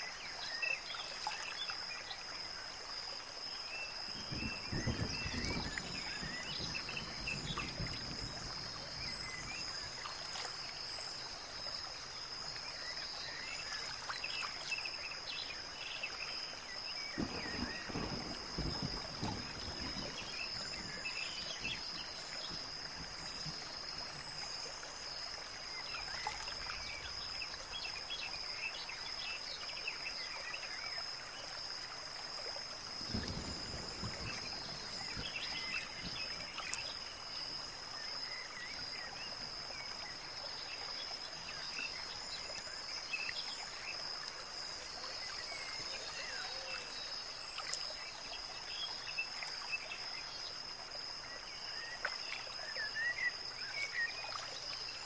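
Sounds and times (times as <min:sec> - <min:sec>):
faint clicks and chirps: 0:33.1 - 0:50.5.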